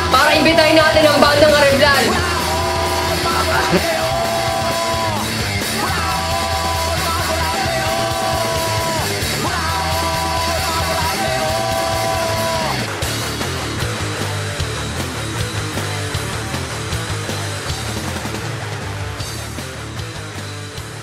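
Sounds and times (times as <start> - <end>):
rock band playing: 0.0 - 21.0
person singing long notes: 1.9 - 5.2.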